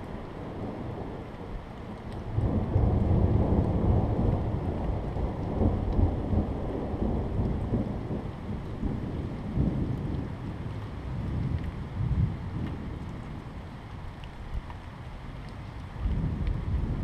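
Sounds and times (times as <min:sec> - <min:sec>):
rolling thunder: 0:02.2 - 0:13.5, 0:16.1 - 0:17.0.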